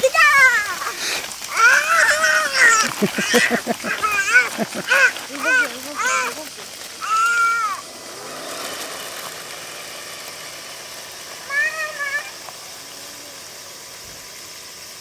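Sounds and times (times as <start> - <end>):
child squealing: 0.0 - 7.9, 11.5 - 12.4
faint hiss: 0.0 - 15.0.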